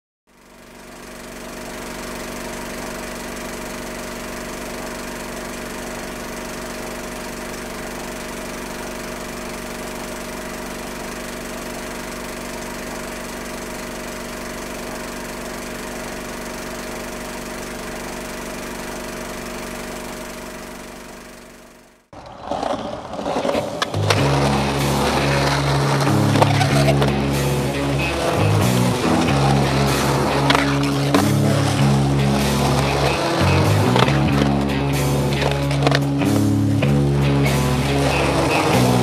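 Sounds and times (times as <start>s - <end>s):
constant hum: 0.4s - 39.0s
steady mechanical whirr: 23.8s - 39.0s.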